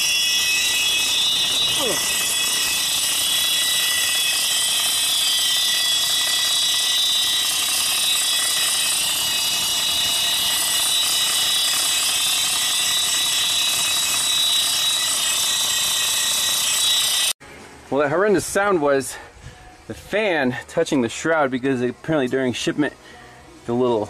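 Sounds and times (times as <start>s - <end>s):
cooling fan scraping and whining: 0.0s - 15.8s.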